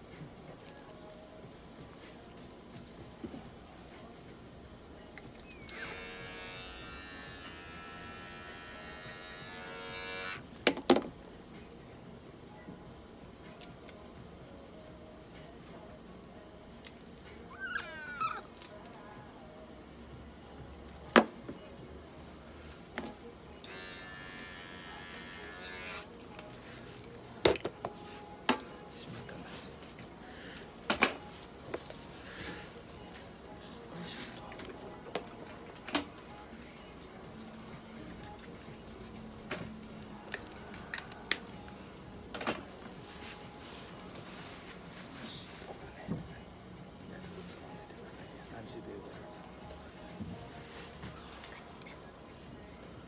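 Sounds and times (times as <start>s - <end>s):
electric hair clipper buzzing: 5.7s - 10.5s, 23.6s - 26.2s.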